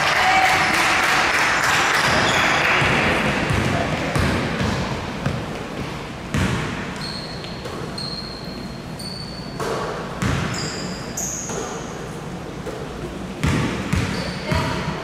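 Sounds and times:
gym hall background noise: 0:00.0 - 0:15.0
basketball bouncing on gym floor: 0:01.9 - 0:08.1, 0:09.4 - 0:10.8, 0:12.6 - 0:14.9
shoe squeaks: 0:07.0 - 0:12.0, 0:14.0 - 0:14.7.

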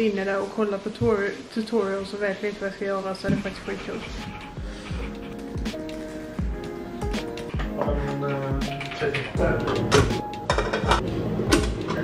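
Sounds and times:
music with sustained chords and beat: 0:03.8 - 0:12.0.

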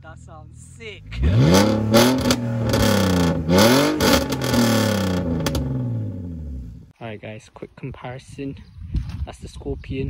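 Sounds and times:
car engine revving: 0:01.0 - 0:06.9.

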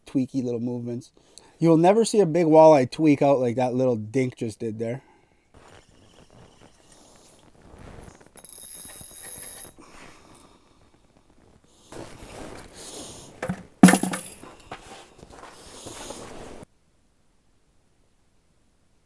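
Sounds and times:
fishing reel whine: 0:08.4 - 0:09.8
sharp knock: 0:13.4 - 0:14.3
boots crunching on snow: 0:14.4 - 0:16.6.

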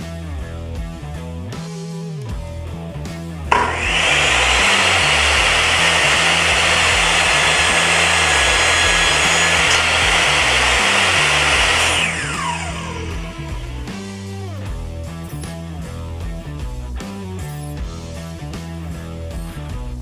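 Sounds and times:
background music: 0:00.2 - 0:20.0
table saw motor running: 0:03.5 - 0:14.4.

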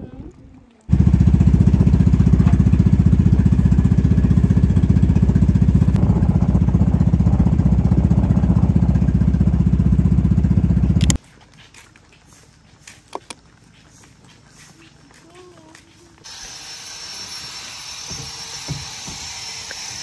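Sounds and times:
small engine running: 0:00.9 - 0:11.2, 0:14.5 - 0:20.0.

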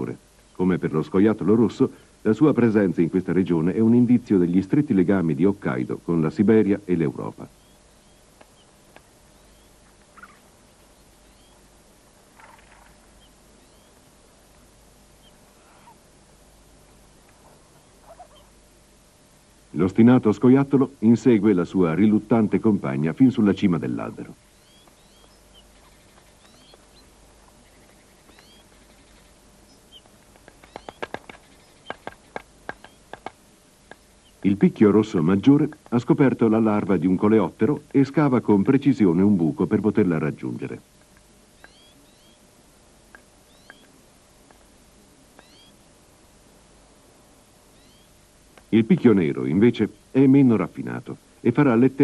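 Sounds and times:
steady hiss: 0:00.0 - 0:52.0
rough chattering calls: 0:07.6 - 0:14.0, 0:15.1 - 0:16.1, 0:17.8 - 0:18.6, 0:24.5 - 0:34.6, 0:41.6 - 0:42.4, 0:43.5 - 0:44.0, 0:45.4 - 0:45.8, 0:47.8 - 0:48.2
high animal chirps: 0:09.4 - 0:11.6, 0:15.2 - 0:16.0, 0:17.8 - 0:18.6, 0:24.6 - 0:33.2, 0:41.6 - 0:42.4, 0:43.5 - 0:44.0, 0:45.4 - 0:45.8, 0:47.8 - 0:48.1
woodpecker tapping on branch: 0:24.8 - 0:34.6, 0:43.1 - 0:44.7.

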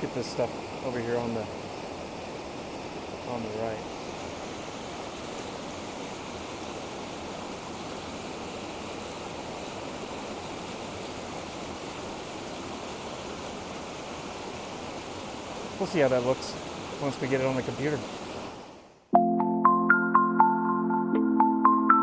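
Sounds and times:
waterfall and river rushing: 0:00.0 - 0:19.0.

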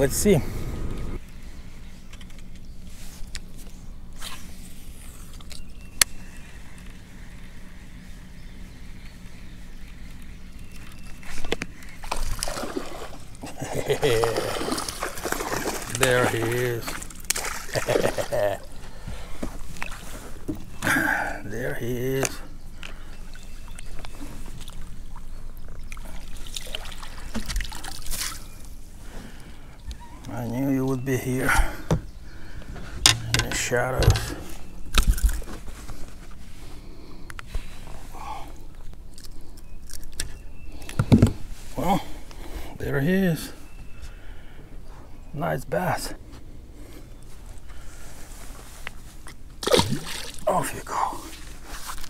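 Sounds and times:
low steady hum: 0:00.0 - 0:52.0
water splashing: 0:12.0 - 0:18.5, 0:25.9 - 0:28.4, 0:49.6 - 0:51.1.

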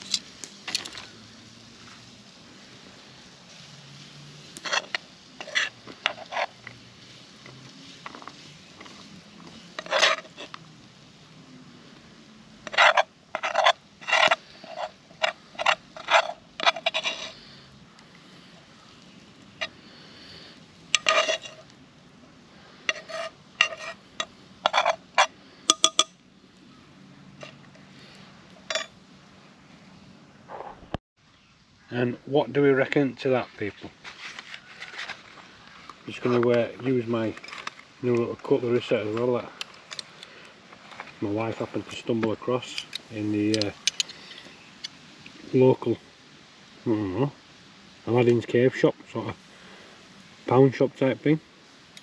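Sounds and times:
utensil scraping a pan: 0:03.4 - 0:10.6, 0:12.6 - 0:17.7, 0:19.4 - 0:21.7, 0:22.7 - 0:26.2.

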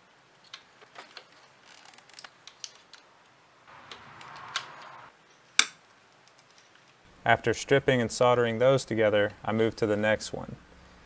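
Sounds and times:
wire strippers clicking: 0:03.7 - 0:06.7.

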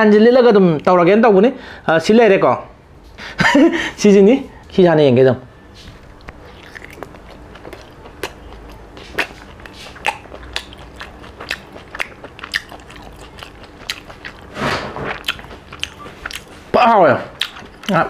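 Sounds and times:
man chewing food: 0:05.8 - 0:18.0.

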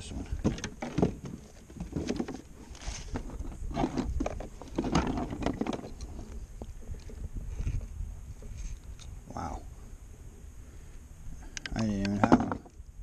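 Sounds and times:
knocks and scrapes against kayak hull: 0:00.2 - 0:09.0, 0:12.1 - 0:12.8.

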